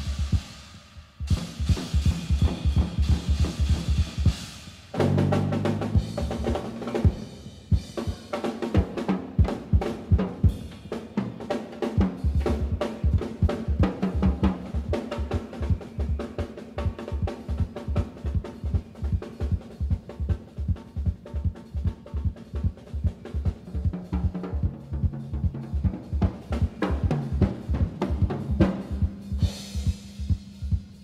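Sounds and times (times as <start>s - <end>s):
snare and bass drum strokes: 0.0s - 31.0s
big band jazz music: 5.0s - 11.2s.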